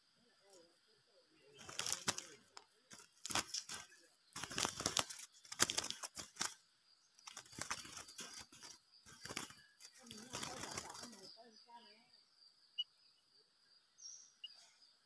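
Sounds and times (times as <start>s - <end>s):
bird wings fluttering against cage: 1.6s - 6.6s, 7.2s - 11.3s.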